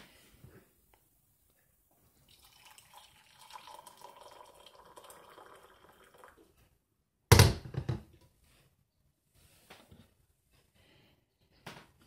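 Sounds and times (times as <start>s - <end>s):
hot water pouring into a mug: 2.2s - 6.5s.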